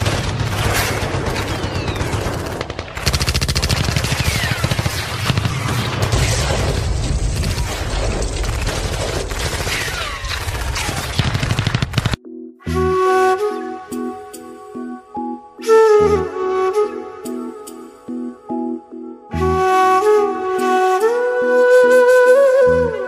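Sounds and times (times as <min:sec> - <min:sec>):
machine-gun fire: 0:00.0 - 0:12.2.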